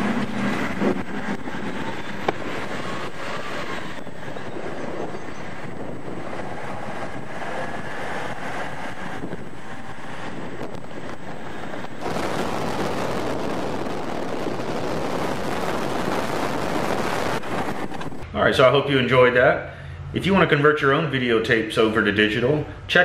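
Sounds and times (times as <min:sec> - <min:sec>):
wind on microphone: 0:00.0 - 0:18.3
moving vehicle rumble: 0:00.0 - 0:18.5.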